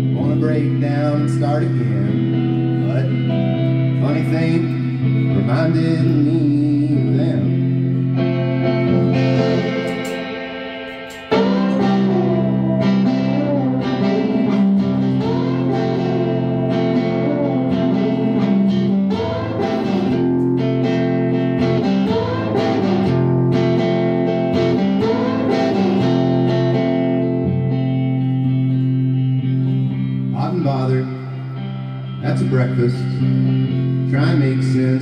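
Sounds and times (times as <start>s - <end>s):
electric guitar lead notes: 0.0s - 35.0s
rock band playing: 0.0s - 35.0s.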